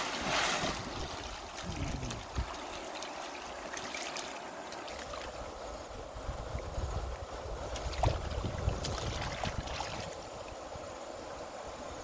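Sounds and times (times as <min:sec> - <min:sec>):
big splash: 0:00.0 - 0:01.9
river water splashing and sloshing: 0:00.0 - 0:12.0.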